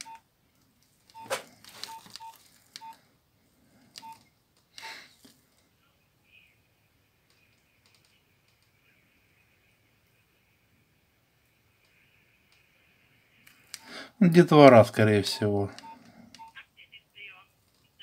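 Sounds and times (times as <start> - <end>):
phone key beeps: 1.1 - 3.0, 4.0 - 4.2
voice recording from phone speaker: 5.7 - 9.8, 14.2 - 18.0.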